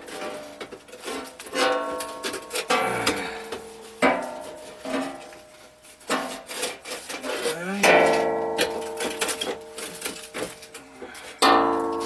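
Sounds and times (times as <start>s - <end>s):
sheet metal pipes clanking: 0.0s - 12.0s.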